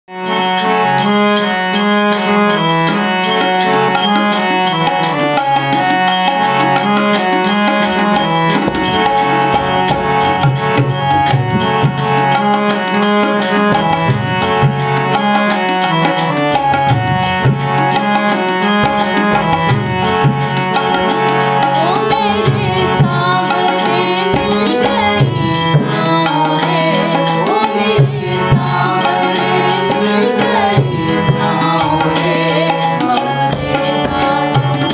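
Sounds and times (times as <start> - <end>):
harmonium melody: 0.0 - 34.9
tabla strokes: 0.3 - 34.9
person singing: 17.9 - 34.9.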